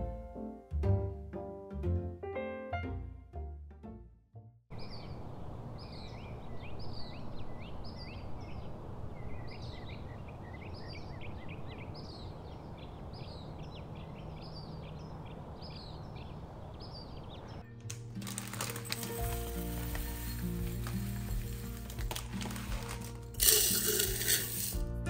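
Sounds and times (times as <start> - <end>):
birds chirping: 4.7 - 17.7.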